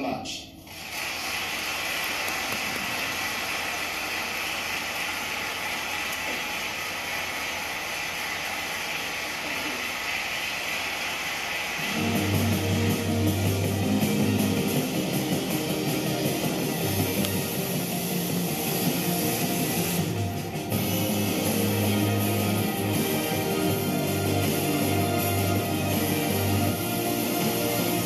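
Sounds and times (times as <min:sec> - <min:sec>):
audience applauding: 0:00.7 - 0:12.4
rock music with guitar and bass: 0:11.9 - 0:28.0.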